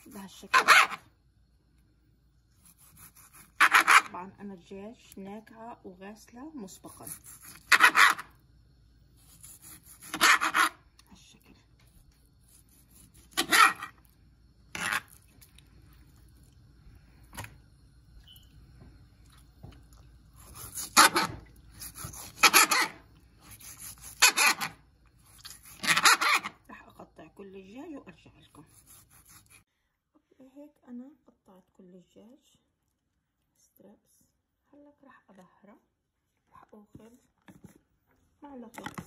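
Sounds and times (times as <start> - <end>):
knife scraping on glass board: 9.3 - 10.8, 20.4 - 24.8, 25.4 - 26.6.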